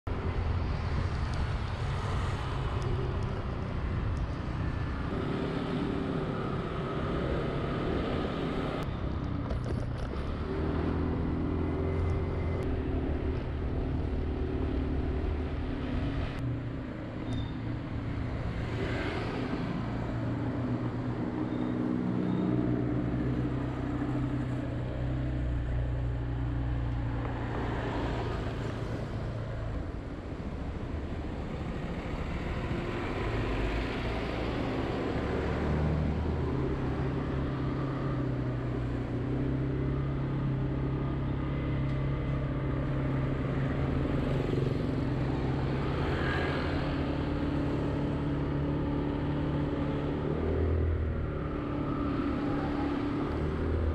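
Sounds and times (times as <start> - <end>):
vehicle engine and road noise: 0.0 - 53.9.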